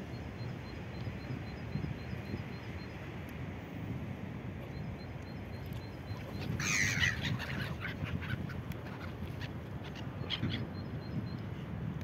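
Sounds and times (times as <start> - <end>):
gulls calling: 5.5 - 11.0.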